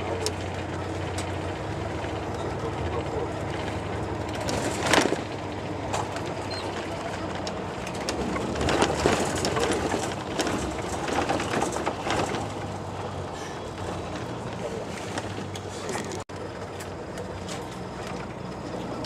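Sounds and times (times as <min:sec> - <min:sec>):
vehicle running noise inside: 0:00.0 - 0:19.0
knocks and rattles: 0:02.0 - 0:16.2.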